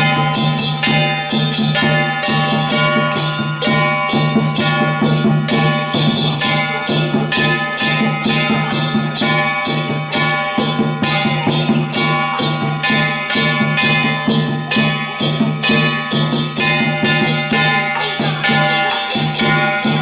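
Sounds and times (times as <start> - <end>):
clashing cymbals and gongs: 0.0 - 20.0.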